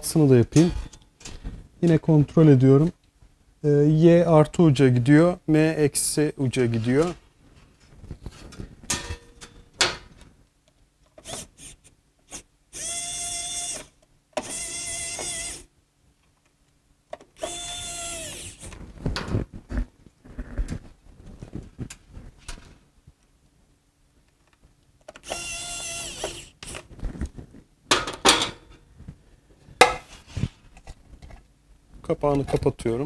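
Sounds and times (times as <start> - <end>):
electric screwdriver motor whirring: 11.2 - 15.7, 17.4 - 18.7, 25.2 - 26.9.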